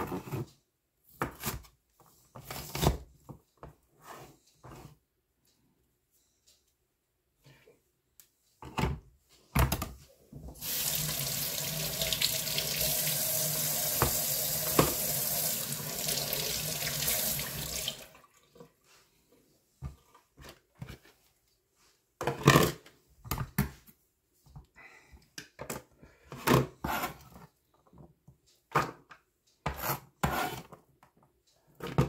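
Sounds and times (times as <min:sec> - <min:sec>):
tap water running into sink: 0:10.6 - 0:18.4.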